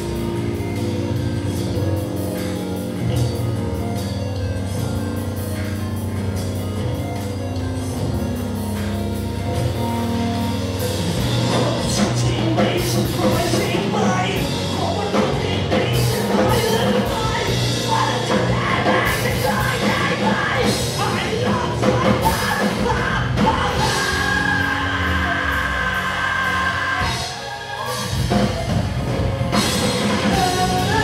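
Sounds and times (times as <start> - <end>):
bass guitar: 0.0 - 31.0
drums: 0.0 - 31.0
keyboards: 0.0 - 31.0
shouted vocals: 16.5 - 28.1.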